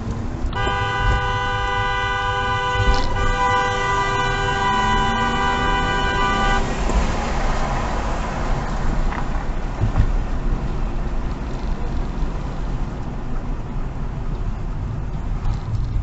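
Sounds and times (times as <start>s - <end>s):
road and engine noise inside car: 0.0s - 16.0s
train horn chord: 0.6s - 6.6s
thump: 9.8s - 10.2s.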